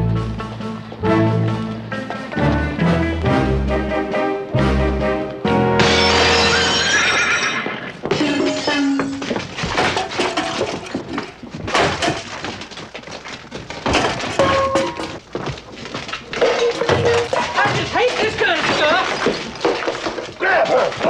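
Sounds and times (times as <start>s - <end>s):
glass shattering: 5.8s - 8.8s, 16.4s - 20.4s
knocks and crashes: 5.8s - 21.0s.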